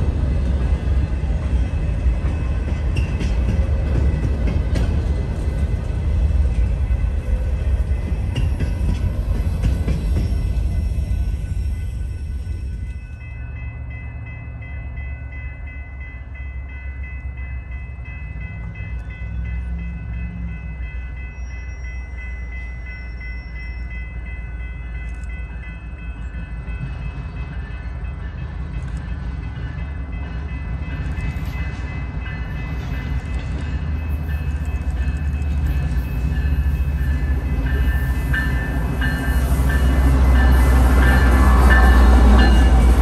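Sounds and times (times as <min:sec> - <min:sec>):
long steady train horn: 0:36.5 - 0:43.0.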